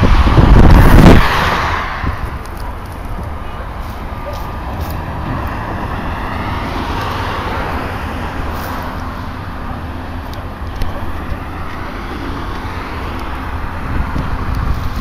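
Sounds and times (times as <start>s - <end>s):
van passing: 0.0s - 15.0s.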